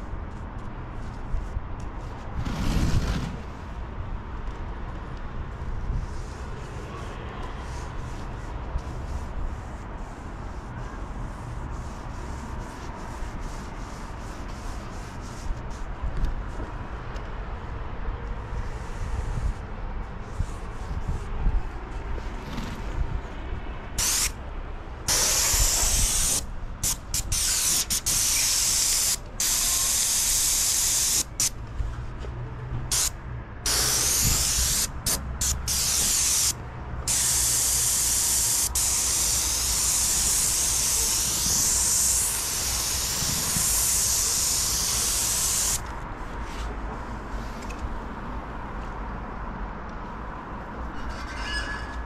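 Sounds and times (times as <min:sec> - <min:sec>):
paint spray gun hissing: 0:24.0 - 0:24.3, 0:25.1 - 0:31.5, 0:33.7 - 0:45.8.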